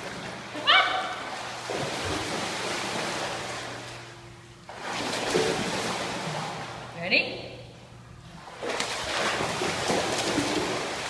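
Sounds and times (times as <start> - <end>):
dog splashing through water: 8.6 - 11.0.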